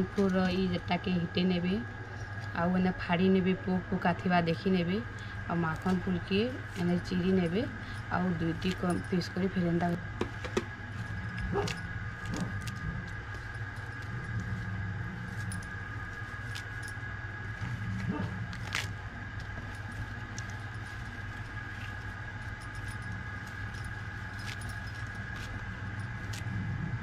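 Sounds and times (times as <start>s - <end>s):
low hum: 0.0s - 27.0s
bangles clinking: 5.7s - 26.6s
flowers tearing with crackles: 17.5s - 22.5s.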